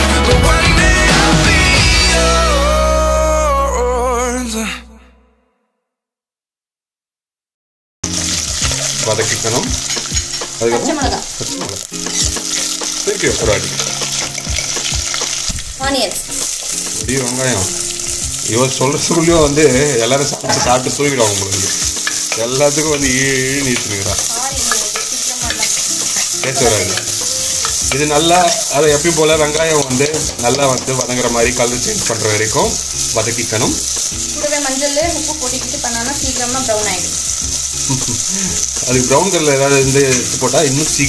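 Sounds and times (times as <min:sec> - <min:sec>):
garlic sizzling in hot oil: 0:08.0 - 0:41.0.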